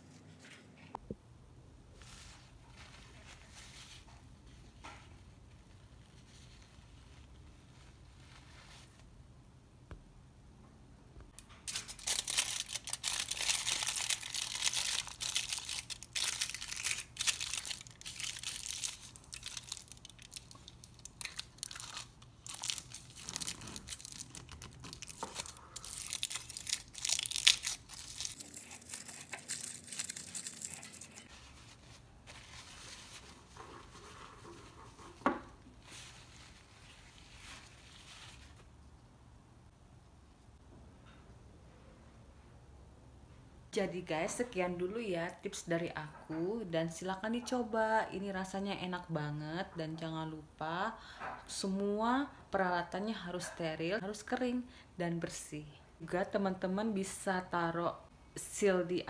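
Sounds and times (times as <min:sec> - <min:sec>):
aluminium foil crinkling: 0:11.4 - 0:35.2, 0:35.8 - 0:38.7.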